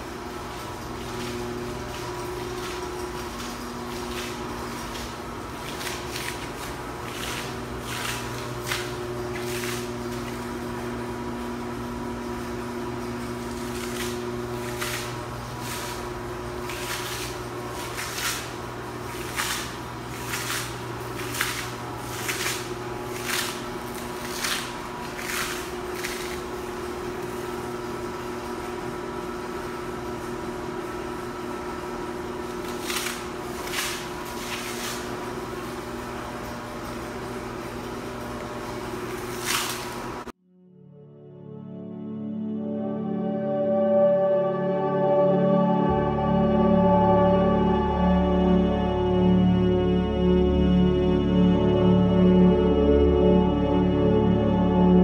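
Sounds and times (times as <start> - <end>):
machine hum: 0.0 - 55.0
footsteps on concrete: 1.0 - 10.5.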